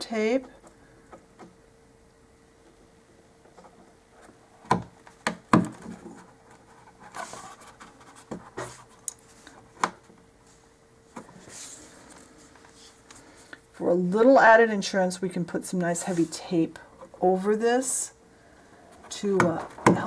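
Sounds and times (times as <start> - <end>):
scratchy rubbing: 5.9 - 8.9.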